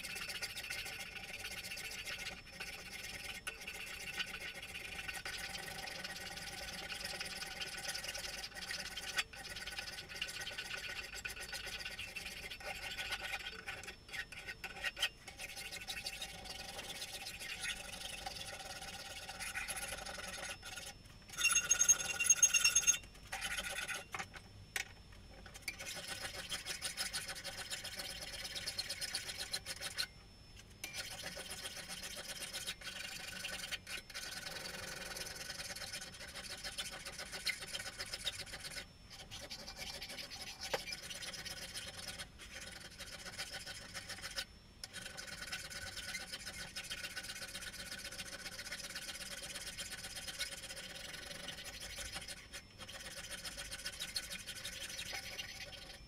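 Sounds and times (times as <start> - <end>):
hand file rasping on steel blade: 12.0 - 17.8, 30.8 - 56.0.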